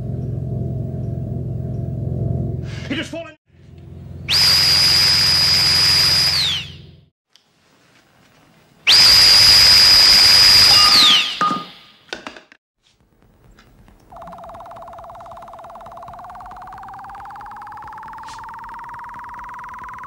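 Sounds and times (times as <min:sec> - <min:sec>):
electronic buzzing tone: 0:04.2 - 0:07.0, 0:14.1 - 0:20.0.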